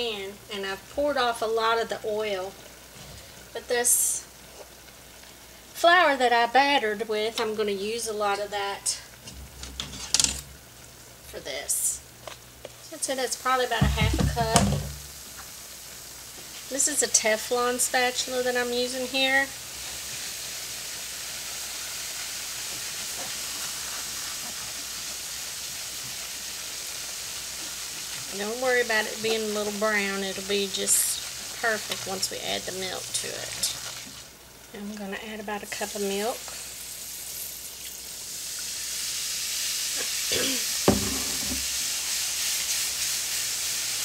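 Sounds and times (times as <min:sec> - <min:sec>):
oil sizzling in a skillet: 0:00.0 - 0:44.0
whisk stirring in a pan: 0:21.3 - 0:26.4, 0:27.5 - 0:34.3, 0:41.6 - 0:44.0.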